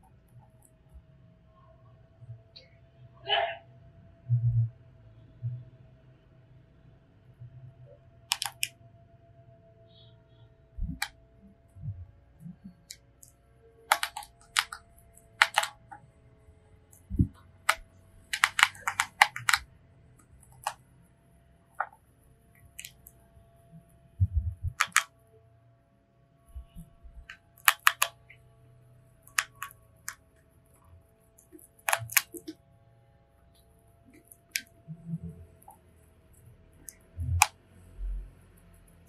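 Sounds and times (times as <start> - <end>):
soft low thumps: 24.2 - 24.8.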